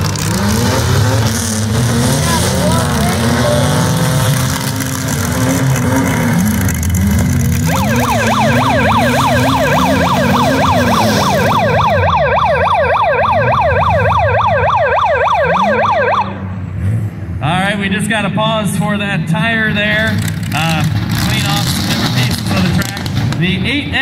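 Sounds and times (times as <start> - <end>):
car engines revving unevenly: 0.0 - 24.0
yelp siren: 7.6 - 16.4.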